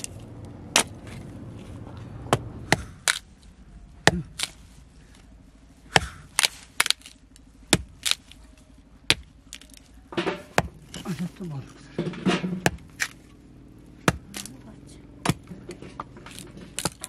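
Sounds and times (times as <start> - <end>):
hatchet chopping wood: 0.7 - 1.2, 2.3 - 3.3, 4.0 - 4.6, 5.9 - 8.4, 9.0 - 11.2, 12.0 - 13.2, 14.0 - 14.6, 15.2 - 17.0.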